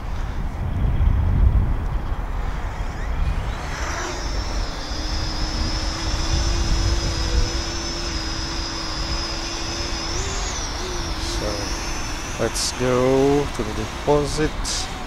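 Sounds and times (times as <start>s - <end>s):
drone rotors whining: 0.0s - 15.0s
wind rumble on microphone: 0.0s - 15.0s.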